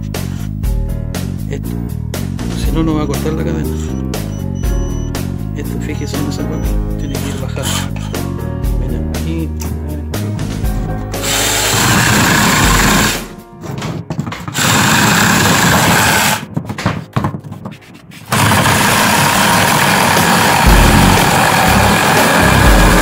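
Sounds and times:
music: 0.0 - 14.6, 15.3 - 18.3, 20.0 - 23.0
cordless chainsaw cutting branches: 11.2 - 13.3, 14.5 - 16.4, 18.3 - 23.0.

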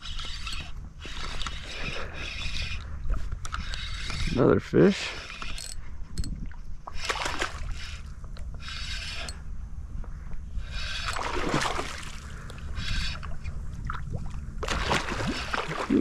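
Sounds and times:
fishing reel rasping: 0.0 - 9.5, 10.5 - 11.4, 12.3 - 13.6
steady low rumble: 9.3 - 16.0.

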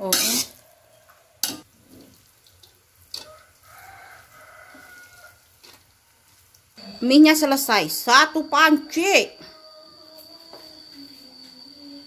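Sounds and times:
metal spatula stirring in wok: 0.0 - 0.7, 1.4 - 6.4.

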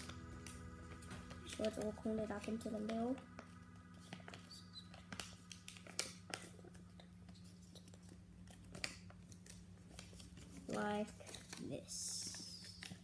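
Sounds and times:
low steady hum: 0.0 - 13.0
paper rustling and crinkling: 4.0 - 13.0.

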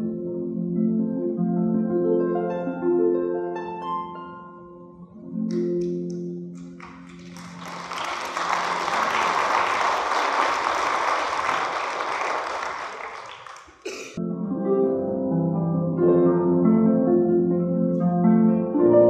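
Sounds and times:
plucked harp music: 0.7 - 6.1
congregation applauding: 5.5 - 14.2.

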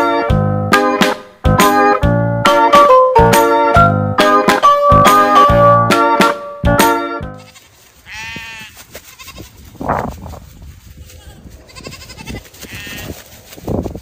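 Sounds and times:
plucked guitar music: 0.0 - 7.5
young farm animal bleating: 7.3 - 9.6, 10.9 - 13.2.

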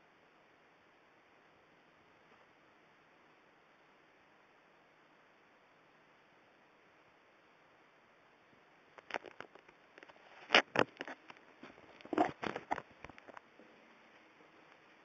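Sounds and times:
phone handling clicks and rustles: 9.0 - 13.4.

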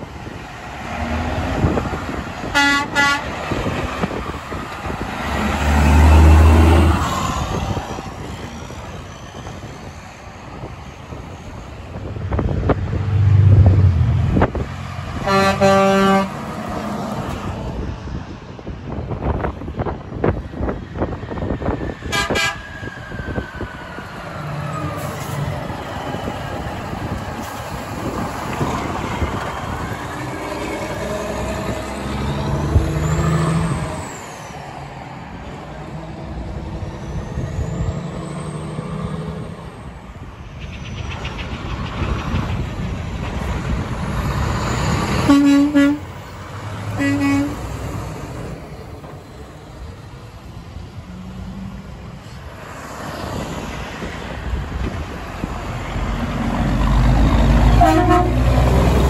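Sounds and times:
truck diesel engine passing: 0.0 - 59.0
truck air horn blasts: 2.5 - 3.4, 15.2 - 16.4, 22.1 - 22.7, 45.2 - 46.1, 47.0 - 47.7, 57.8 - 58.5.

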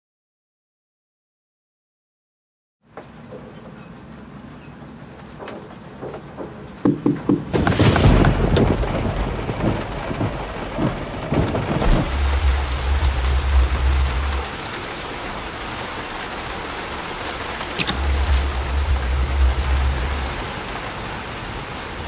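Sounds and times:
heavy rain falling: 5.0 - 22.0
low rumble of thunder: 7.4 - 17.0, 17.9 - 22.0.

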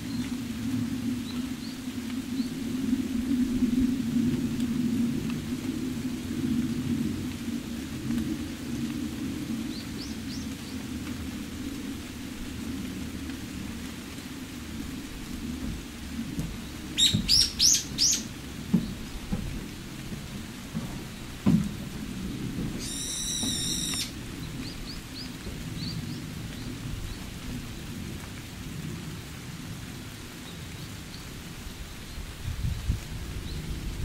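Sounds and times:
wind rumbling on microphone: 0.0 - 34.0
small birds chirping: 16.4 - 19.2, 22.8 - 27.3.

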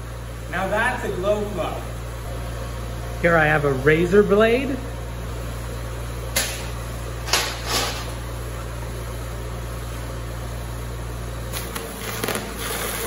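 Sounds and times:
steady hum: 0.0 - 13.0
welding arc crackling: 3.2 - 9.2, 10.7 - 13.0.

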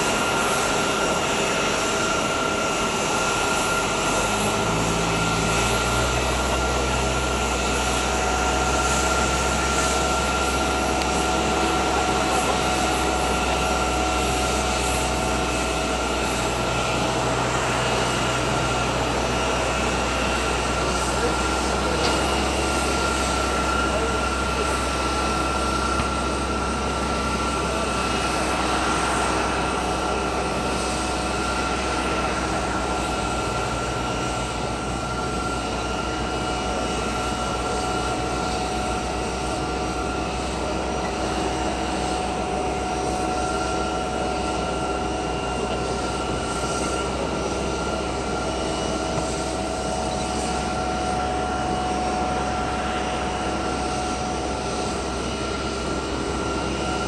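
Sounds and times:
jet turbine whine: 0.0 - 57.0.

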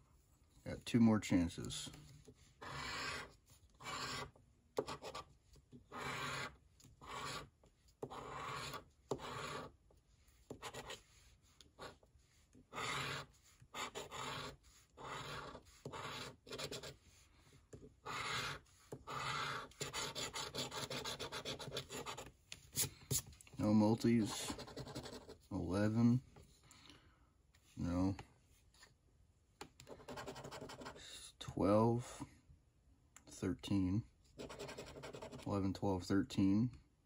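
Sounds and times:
coin scratching lottery ticket: 2.6 - 5.2, 5.9 - 7.5, 8.1 - 9.7, 12.7 - 16.9, 18.0 - 22.2, 24.2 - 25.3, 34.4 - 35.5.

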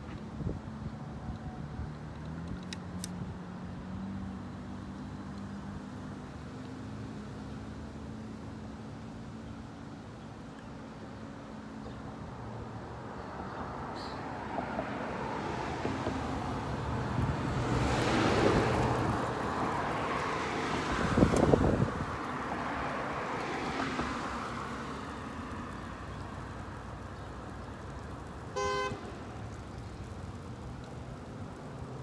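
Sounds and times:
vehicles swishing past: 0.0 - 32.0
car horn beep: 28.6 - 29.0.

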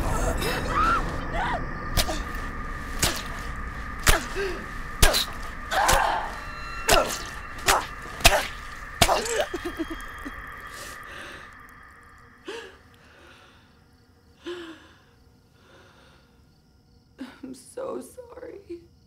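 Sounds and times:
pained cries: 0.0 - 2.5, 4.0 - 11.6
heavy blows: 0.0 - 12.9.

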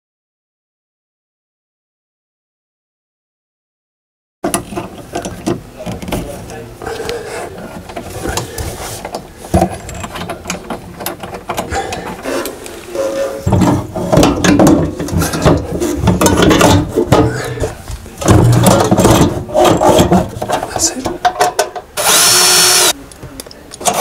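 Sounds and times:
metal parts clattering: 9.5 - 17.4, 18.2 - 21.8.

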